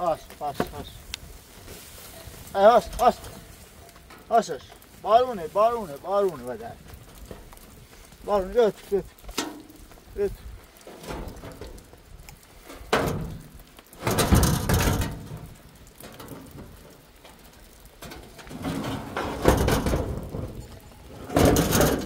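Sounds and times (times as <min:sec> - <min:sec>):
rain falling: 0:00.0 - 0:22.0
metal sheet scraping and rattling: 0:01.7 - 0:07.4, 0:10.8 - 0:11.8, 0:12.6 - 0:17.0, 0:18.0 - 0:22.0.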